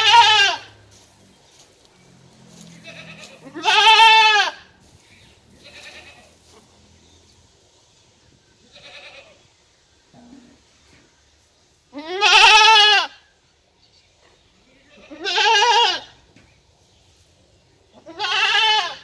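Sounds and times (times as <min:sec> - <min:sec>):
goat kid bleating: 0:00.0 - 0:00.8, 0:02.7 - 0:04.8, 0:05.5 - 0:06.6, 0:08.7 - 0:09.4, 0:11.9 - 0:13.2, 0:14.8 - 0:16.2, 0:17.9 - 0:19.0.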